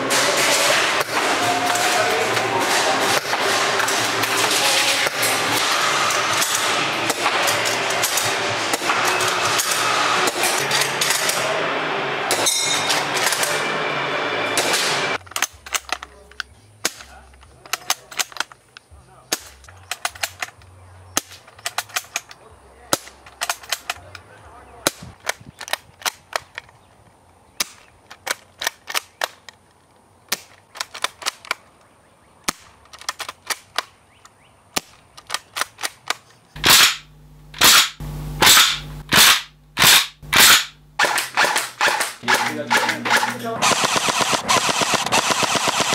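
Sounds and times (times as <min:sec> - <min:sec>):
airsoft rifle shots and clicks: 0:02.6 - 0:11.5, 0:14.6 - 0:16.2, 0:16.8 - 0:18.6, 0:19.3 - 0:20.6, 0:21.2 - 0:24.2, 0:27.6 - 0:29.6, 0:30.3 - 0:31.6, 0:32.4 - 0:34.0, 0:34.7 - 0:45.9.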